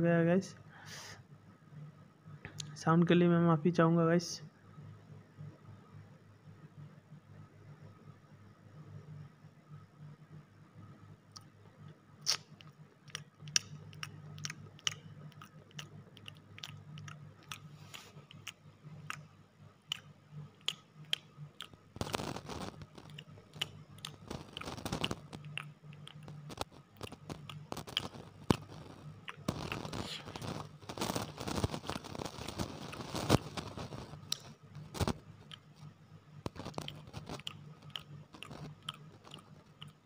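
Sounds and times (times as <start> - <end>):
crunchy food chewing: 12.2 - 40.0.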